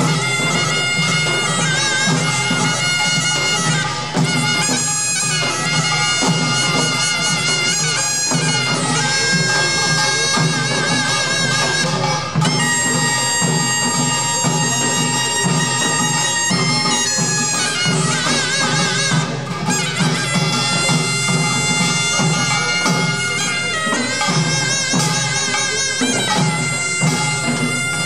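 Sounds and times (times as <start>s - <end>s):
hourglass drums beating: 0.0s - 28.0s
reedy shawm melody: 0.0s - 28.0s.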